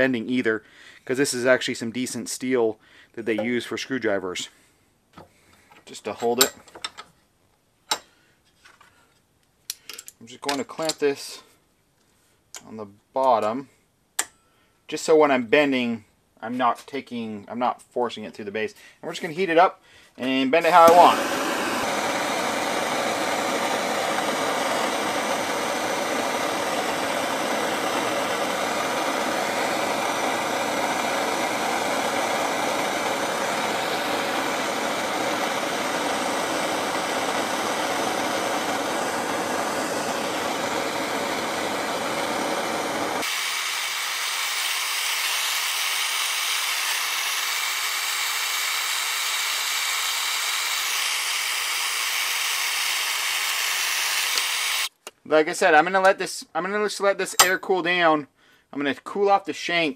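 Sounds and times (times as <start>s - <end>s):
torch flame burning: 20.6s - 54.9s.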